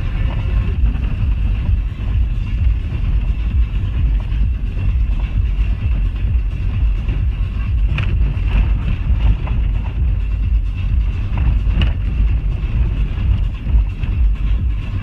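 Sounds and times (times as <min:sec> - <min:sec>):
vehicle rumbling over gravel: 0:00.0 - 0:15.0
knocks and rattles from stones: 0:11.2 - 0:14.1.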